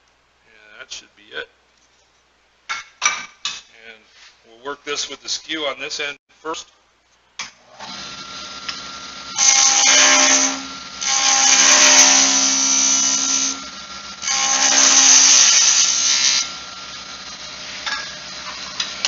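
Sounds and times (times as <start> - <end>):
wood lathe humming: 7.8 - 19.0
chisel cutting wood with a hiss: 9.4 - 13.7, 14.3 - 16.6.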